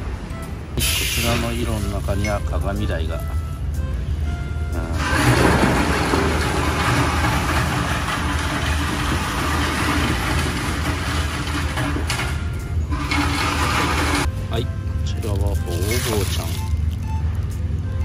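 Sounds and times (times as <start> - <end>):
engine idling: 4.2 - 16.4.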